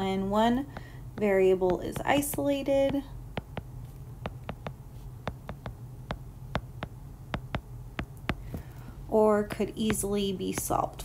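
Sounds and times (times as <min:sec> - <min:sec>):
stylus tapping on glass screen: 0:00.7 - 0:08.7.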